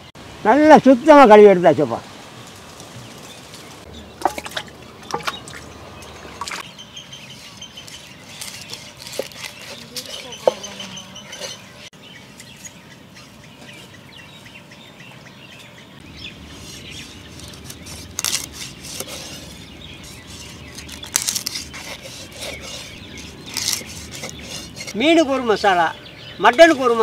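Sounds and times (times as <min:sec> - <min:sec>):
birds chirping: 0:00.0 - 0:27.0
knife cutting fish on wooden board: 0:07.8 - 0:11.6, 0:17.0 - 0:25.0.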